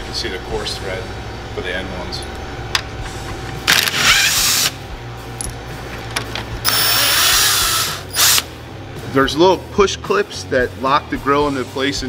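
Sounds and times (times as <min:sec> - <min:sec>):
cordless power tool whining: 0:03.7 - 0:04.8, 0:06.7 - 0:08.5.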